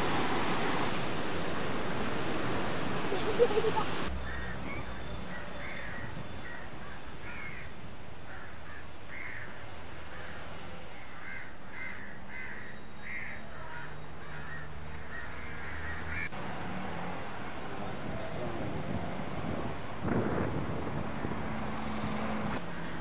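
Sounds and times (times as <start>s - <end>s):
crows cawing: 4.2s - 4.6s, 5.3s - 7.7s, 8.3s - 9.5s, 10.1s - 10.4s, 11.0s - 16.3s.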